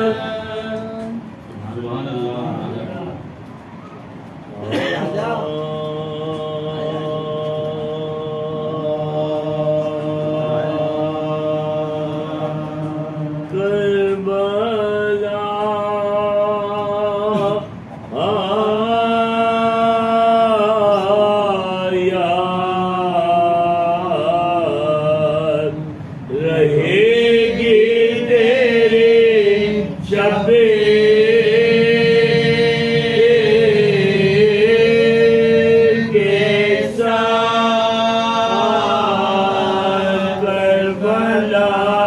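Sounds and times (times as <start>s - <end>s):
men chanting together: 0.0s - 1.2s, 4.7s - 42.0s.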